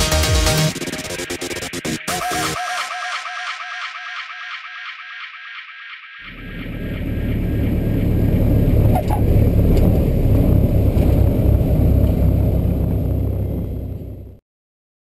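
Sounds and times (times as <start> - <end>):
rushing air: 6.2 - 14.2
propeller aircraft engine rumble: 6.2 - 14.4
brief squeal: 8.8 - 9.3.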